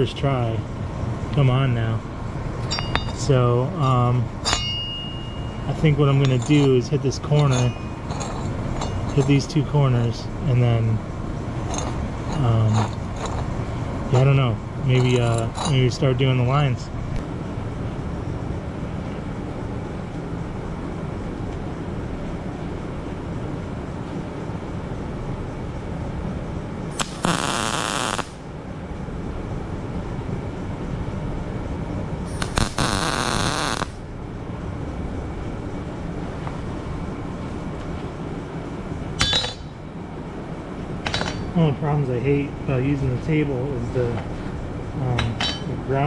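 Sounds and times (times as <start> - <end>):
low shop rumble: 0.0 - 46.0
welding arc crackling: 26.9 - 28.4, 32.3 - 34.1.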